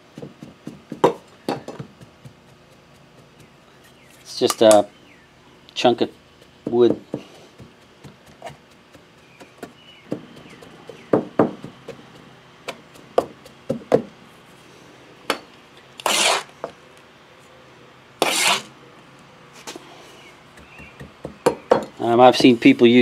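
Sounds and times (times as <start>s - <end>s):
wooden rammer thumping sand: 5.9s - 14.1s
trowel scraping sand: 16.0s - 16.5s, 18.2s - 18.7s.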